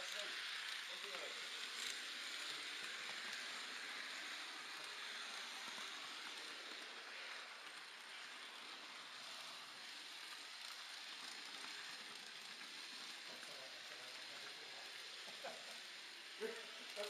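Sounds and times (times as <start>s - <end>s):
model train rolling on track: 0.0s - 17.0s.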